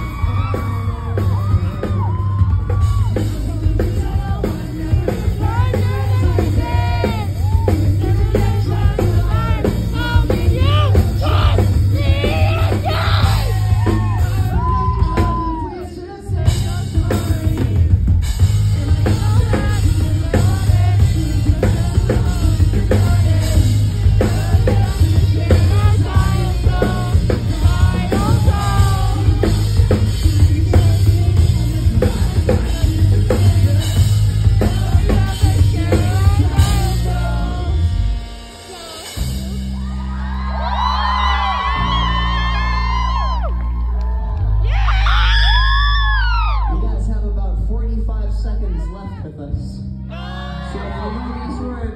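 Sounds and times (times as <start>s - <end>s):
person singing: 0.0s - 39.6s
drum kit: 0.0s - 46.7s.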